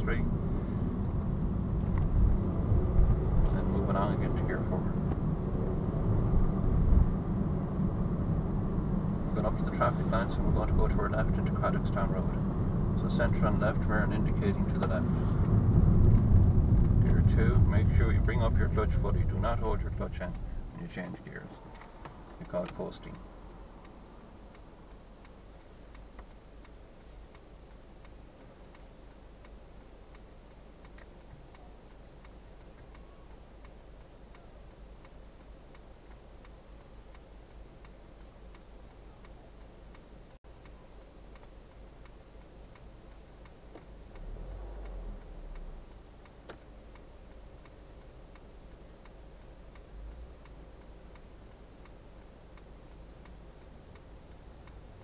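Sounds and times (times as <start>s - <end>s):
low rumble: 0.0s - 25.0s, 44.0s - 46.3s
low steady hum: 0.0s - 55.0s
turn signal ticking: 0.0s - 55.0s.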